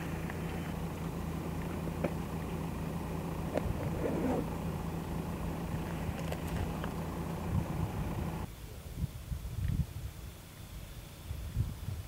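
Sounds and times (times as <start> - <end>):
vehicle engine idling: 0.0 - 8.5.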